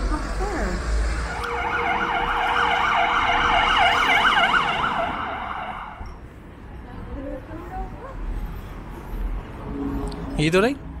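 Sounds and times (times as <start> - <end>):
emergency siren yelping: 1.2 - 6.1.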